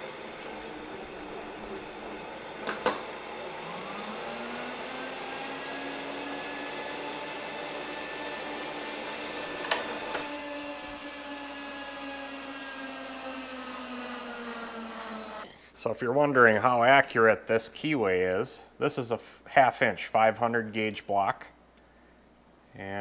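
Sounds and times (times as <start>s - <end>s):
milling machine whine: 0.0s - 15.5s.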